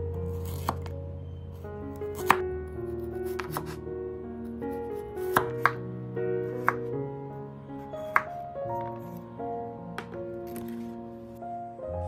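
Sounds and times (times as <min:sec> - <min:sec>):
background music: 0:00.0 - 0:12.0
knife striking cutting board: 0:00.4 - 0:00.9, 0:02.1 - 0:02.4, 0:03.3 - 0:03.8, 0:05.3 - 0:05.8, 0:06.6 - 0:06.9, 0:08.1 - 0:09.0.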